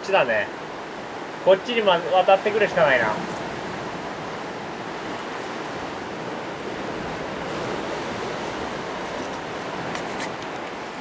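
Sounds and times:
sea surf on rocky shore: 0:00.0 - 0:11.0.

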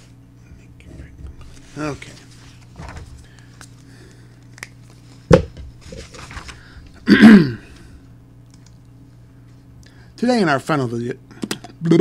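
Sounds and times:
steady low hum: 0:00.0 - 0:12.0
person sighing: 0:07.0 - 0:08.0.

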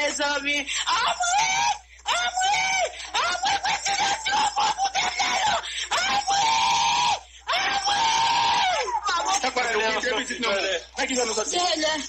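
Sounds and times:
person screaming and wailing: 0:00.9 - 0:09.3.

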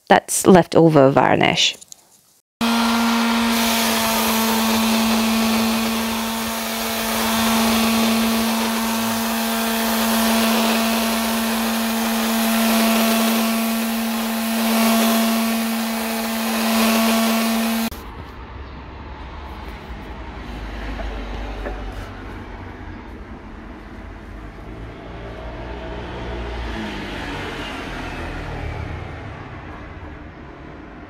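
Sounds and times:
electric sander on wood: 0:02.6 - 0:17.9.

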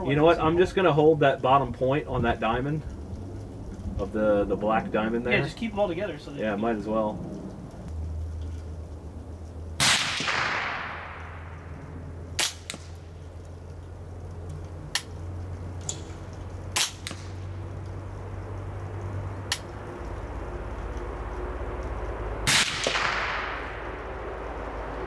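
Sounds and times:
rifle shots: 0:09.8 - 0:11.6, 0:12.4 - 0:13.0, 0:16.7 - 0:17.4, 0:22.4 - 0:23.8.

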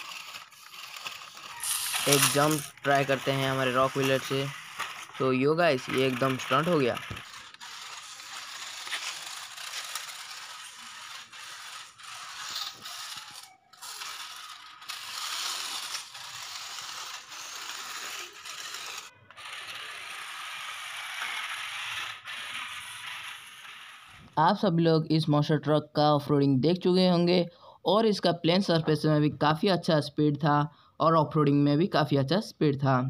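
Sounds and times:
toy car motors whirring and grinding: 0:00.0 - 0:24.4.

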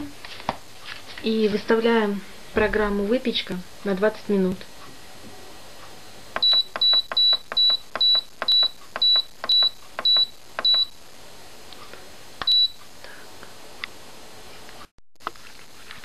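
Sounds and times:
appliance control panel beeping: 0:06.4 - 0:10.9, 0:12.4 - 0:12.8.

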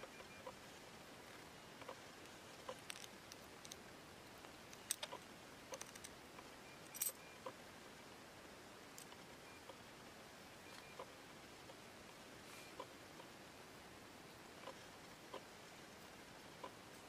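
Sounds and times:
small metal parts clicking: 0:02.7 - 0:03.8, 0:04.7 - 0:06.2, 0:06.8 - 0:07.2.

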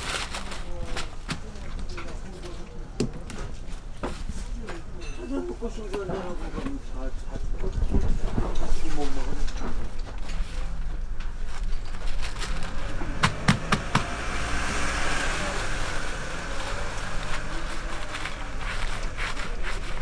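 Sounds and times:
low hum: 0:11.5 - 0:20.0
gloved hands rustling paper towels: 0:15.0 - 0:20.0.

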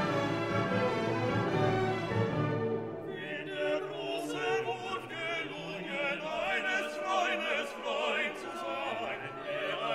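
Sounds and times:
classical accompaniment: 0:00.0 - 0:09.9
operatic singing: 0:02.7 - 0:09.9.

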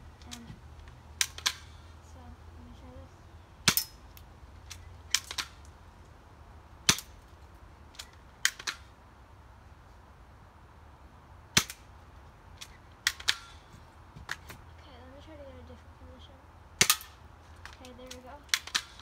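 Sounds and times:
airsoft gun clicks and snaps: 0:01.2 - 0:01.7, 0:03.7 - 0:05.7, 0:07.9 - 0:08.9, 0:12.6 - 0:13.6, 0:16.8 - 0:19.0.

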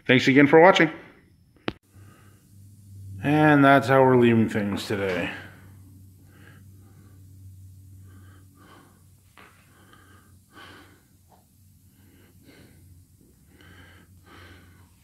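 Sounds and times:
steady low hum: 0:00.0 - 0:15.0
faint breathing: 0:01.8 - 0:03.2, 0:05.3 - 0:15.0.

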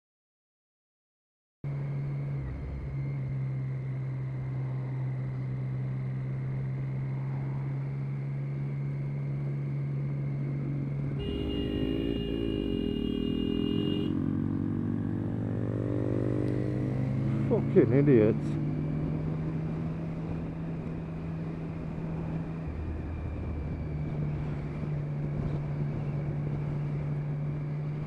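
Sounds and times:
motorcycle horn: 0:11.2 - 0:14.3
motorcycle engine running: 0:11.2 - 0:21.9.

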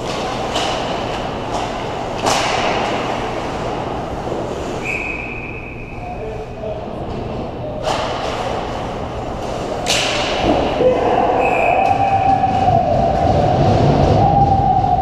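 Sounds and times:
stick and puck clatter: 0:00.0 - 0:04.9, 0:07.0 - 0:10.8.

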